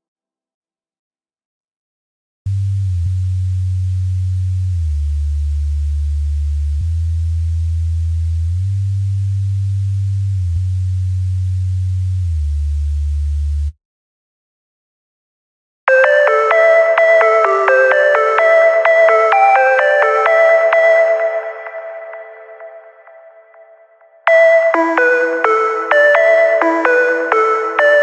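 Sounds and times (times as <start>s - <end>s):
synth sub-bass line: 2.5s - 13.8s.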